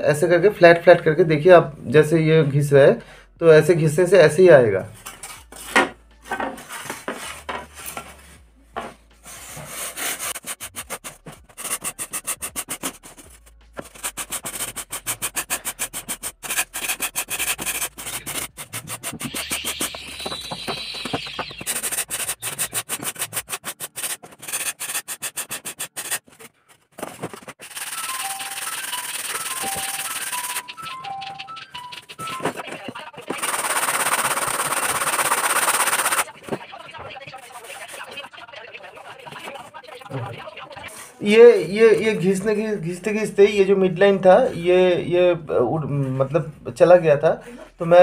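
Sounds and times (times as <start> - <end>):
music: 0.7 - 21.7, 27.7 - 33.6
sandpaper rubbing on foam: 9.2 - 26.5, 27.3 - 30.7, 32.3 - 40.0.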